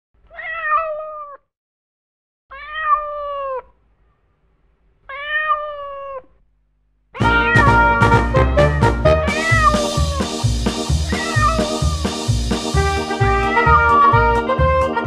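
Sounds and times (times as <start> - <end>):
cat meowing: 0.2 - 1.5, 2.5 - 3.8, 5.0 - 6.4, 7.2 - 10.4, 11.0 - 14.8.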